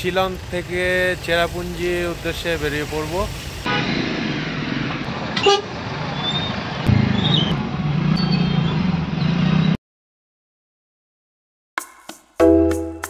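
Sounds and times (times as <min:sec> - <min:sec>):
road traffic from inside a car: 0:00.0 - 0:09.8
car horn toots: 0:05.4 - 0:05.7.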